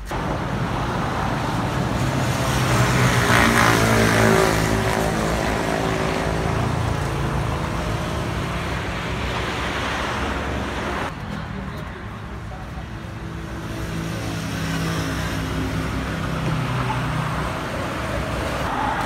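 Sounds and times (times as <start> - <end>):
background traffic noise: 0.0 - 19.0
vehicle engine passing: 0.1 - 11.1.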